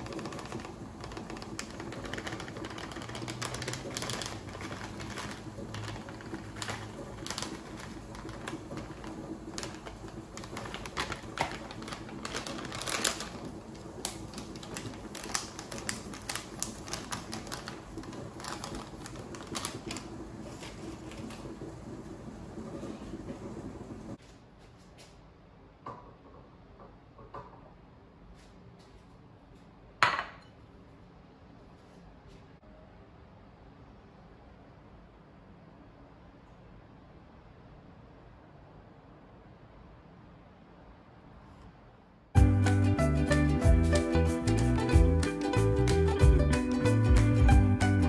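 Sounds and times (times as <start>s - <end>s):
snack packet crinkling: 0.0s - 21.5s.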